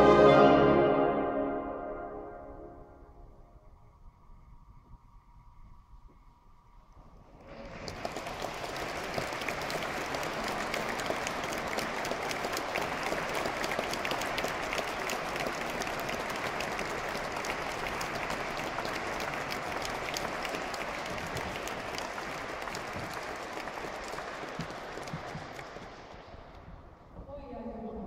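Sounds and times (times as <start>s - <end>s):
audience applauding: 7.4s - 26.6s.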